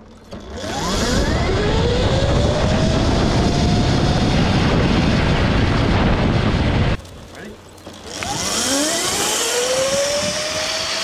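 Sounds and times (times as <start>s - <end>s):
wind and tyre rushing noise: 0.0s - 7.3s, 8.2s - 11.0s
electric motor whining: 0.2s - 5.9s, 7.9s - 11.0s.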